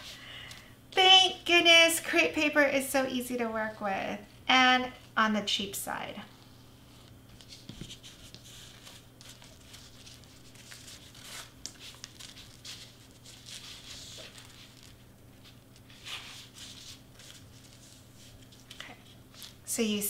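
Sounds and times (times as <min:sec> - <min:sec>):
crepe paper rustling: 0:06.8 - 0:19.7.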